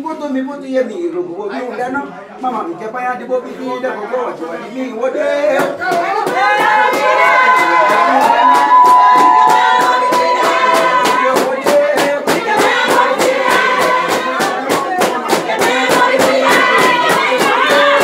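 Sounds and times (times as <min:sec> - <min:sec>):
group of voices singing: 0:04.3 - 0:18.0
hand claps: 0:05.6 - 0:18.0.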